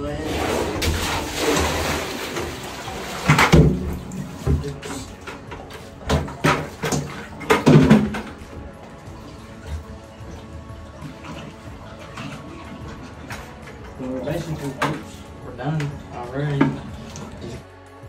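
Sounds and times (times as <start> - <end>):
water splashing and sloshing: 0.0 - 18.0
knocks and clunks: 3.1 - 8.6.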